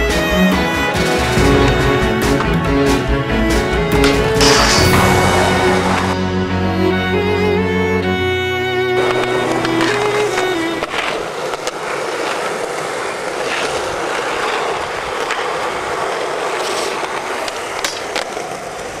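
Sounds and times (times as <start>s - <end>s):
skateboard wheels rolling on concrete: 0.0s - 19.0s
skateboard clicks and knocks: 8.9s - 19.0s.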